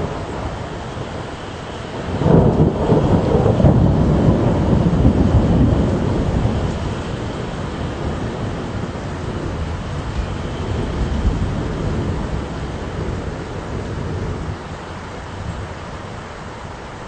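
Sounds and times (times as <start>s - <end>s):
rain hissing: 0.0s - 17.0s
thunder rumbling: 0.0s - 17.0s.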